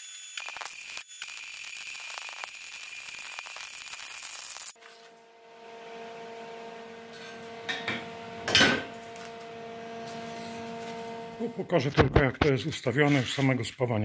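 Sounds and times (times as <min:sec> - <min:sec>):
welding arc hissing and crackling: 0:00.0 - 0:04.8
steady hum with tones: 0:02.0 - 0:12.4.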